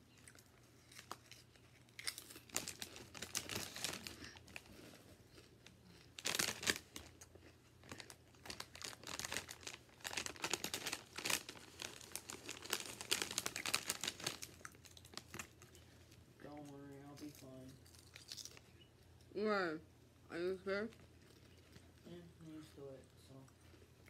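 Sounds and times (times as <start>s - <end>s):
plastic chip bag crinkling: 0.1s - 18.7s.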